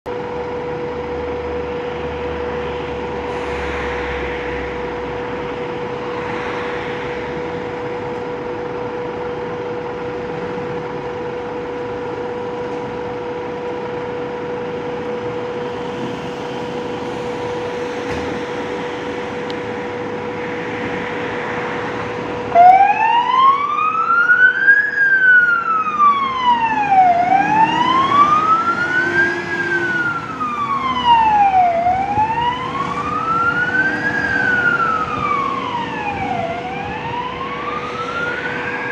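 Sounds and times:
steady single tone: 2.0 - 9.4
electronic siren wailing: 19.2 - 38.9.

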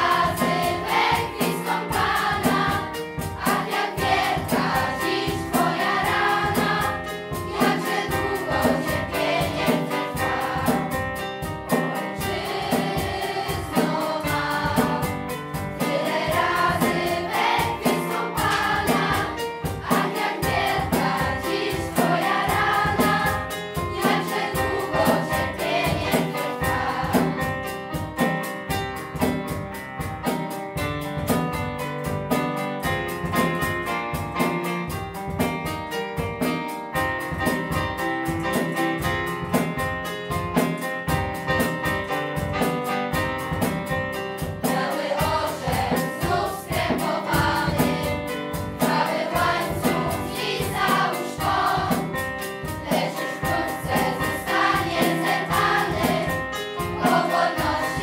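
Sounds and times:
children's choir singing: 0.0 - 15.2, 15.8 - 27.6, 44.6 - 58.0
drum kit steady beat: 0.0 - 58.0
instrumental accompaniment: 0.0 - 58.0.

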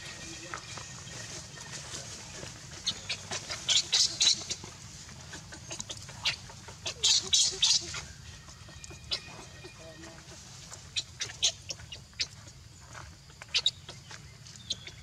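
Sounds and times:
shrill animal squeaks and chirps: 2.8 - 4.6, 5.6 - 9.8.

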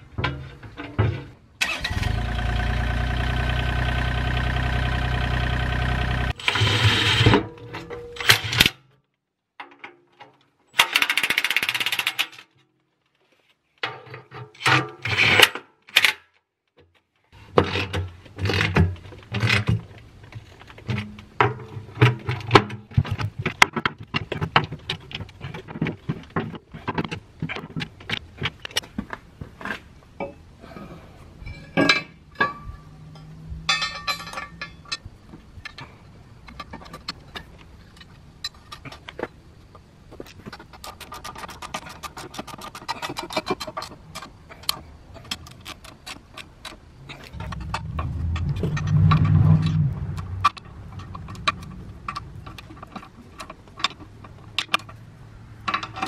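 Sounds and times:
metal clinks and knocks: 31.4 - 39.1
steady even whir: 47.0 - 52.6.

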